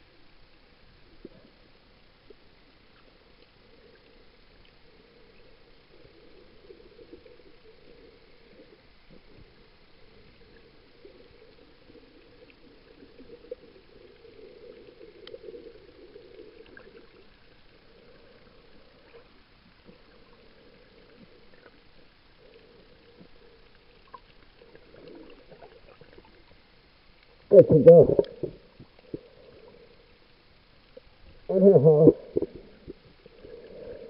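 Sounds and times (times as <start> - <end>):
muffled underwater water wash: 0.0 - 34.0
faint clicks: 2.2 - 26.6.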